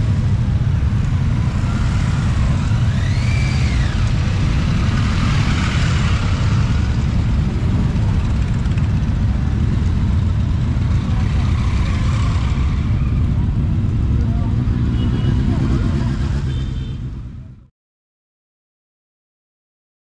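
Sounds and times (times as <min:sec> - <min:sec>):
high rising and falling tone: 0:00.0 - 0:07.8
motorcycle engines rumbling: 0:00.0 - 0:17.7.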